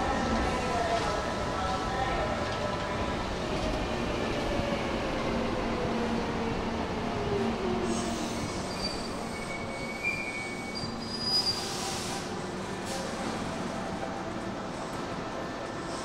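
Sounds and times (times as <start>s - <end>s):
wheel and brake squeals: 8.5s - 12.1s.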